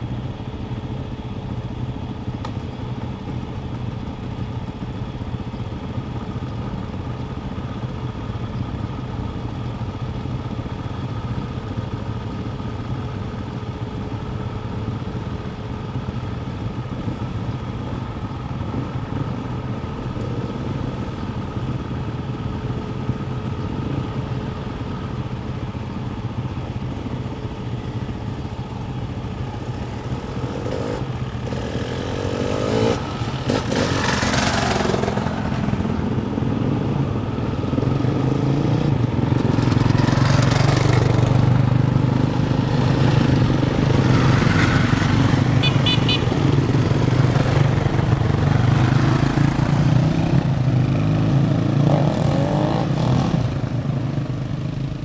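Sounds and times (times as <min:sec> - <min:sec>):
dirt bike engines idling: 0:00.0 - 0:52.0, 0:52.7 - 0:55.0
dirt bike engines revving: 0:27.1 - 0:55.0.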